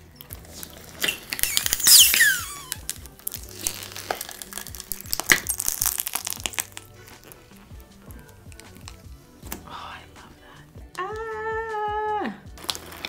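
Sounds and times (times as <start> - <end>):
background music: 0.0 - 13.0
sticky sponge crackling and popping: 0.2 - 9.6, 12.6 - 13.0
plastic wrap crinkling: 0.6 - 7.7
loud falling squeal: 1.4 - 2.8.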